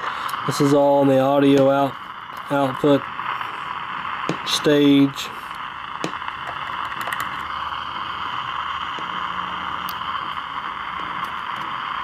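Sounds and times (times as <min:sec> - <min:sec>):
static hiss from speaker: 0:00.0 - 0:12.0
probe tip clicks: 0:04.2 - 0:04.5, 0:05.5 - 0:07.4, 0:08.8 - 0:09.2, 0:09.8 - 0:10.0.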